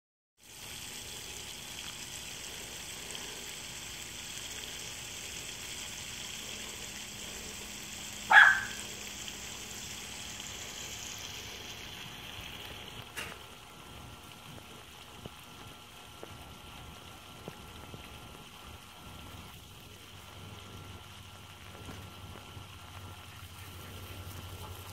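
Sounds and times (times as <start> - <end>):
steady hiss: 0.4 - 24.9
small dog yelping: 8.3 - 8.9.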